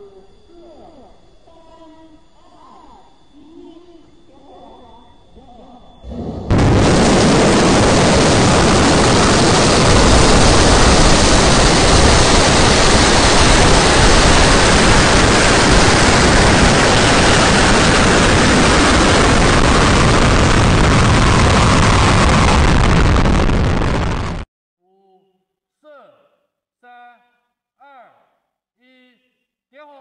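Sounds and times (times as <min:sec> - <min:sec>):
rocket engines roaring: 0:04.2 - 0:24.4.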